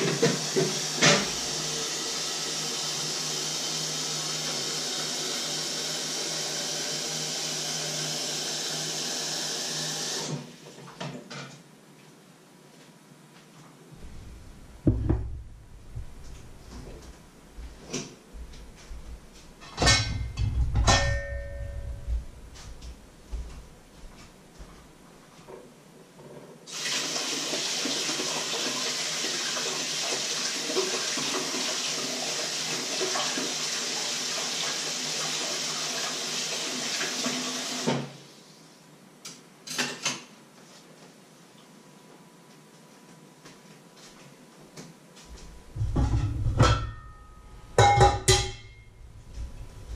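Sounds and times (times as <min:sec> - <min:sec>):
knocks: 0:14.8 - 0:16.4
tap running into sink: 0:14.8 - 0:16.4
kitchenware clattering: 0:19.6 - 0:22.0, 0:45.8 - 0:48.9.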